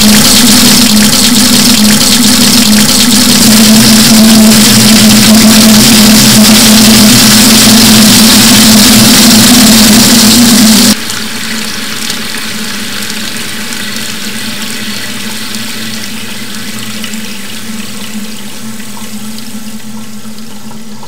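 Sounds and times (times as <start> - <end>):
steady rushing noise: 3.0 - 11.0.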